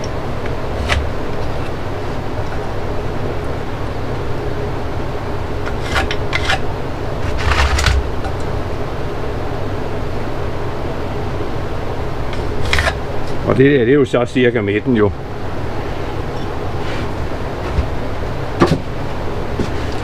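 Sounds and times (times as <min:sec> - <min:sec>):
machine whirring: 0:00.0 - 0:14.2.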